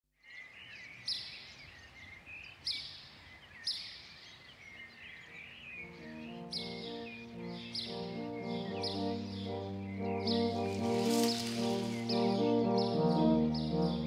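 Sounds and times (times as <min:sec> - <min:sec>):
faint outdoor ambience: 0:00.2 - 0:14.0
birds chirping and calling: 0:00.3 - 0:14.0
soft music with low notes: 0:05.4 - 0:14.0.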